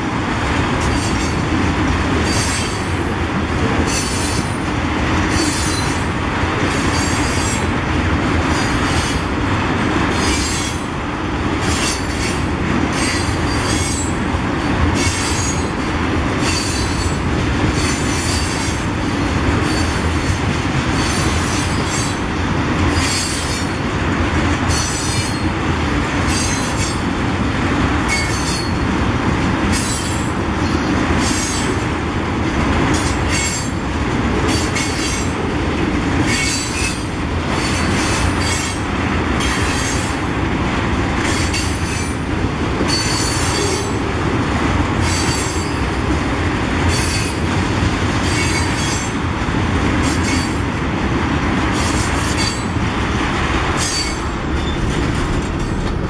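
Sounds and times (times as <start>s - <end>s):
train wheels rumbling on rail: 0.0s - 56.0s
high-pitched wheel squeals: 53.8s - 55.0s.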